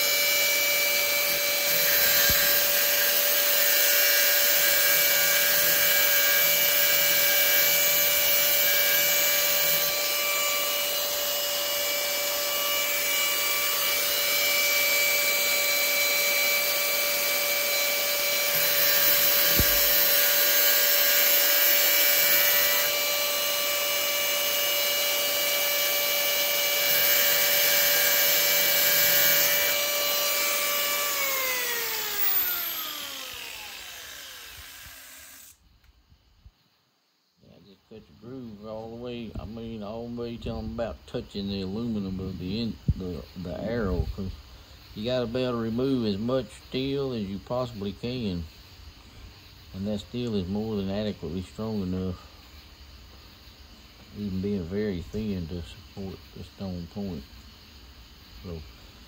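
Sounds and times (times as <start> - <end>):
power grinder whining: 0.0 - 35.6.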